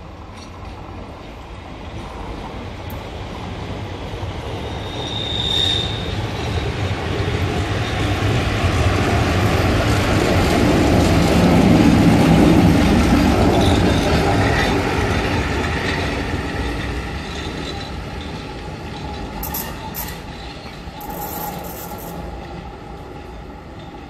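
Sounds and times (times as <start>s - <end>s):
train wheels rumbling: 0.0s - 24.0s
train squealing: 4.2s - 9.0s, 12.2s - 22.5s.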